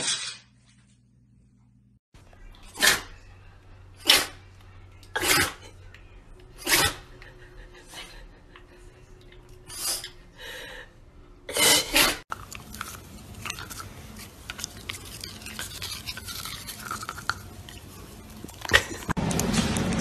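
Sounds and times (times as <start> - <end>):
dog sneezing: 2.8 - 3.1, 4.0 - 4.4, 5.1 - 5.7, 6.6 - 7.1, 11.5 - 12.2
dog chewing toothbrush: 12.3 - 19.2.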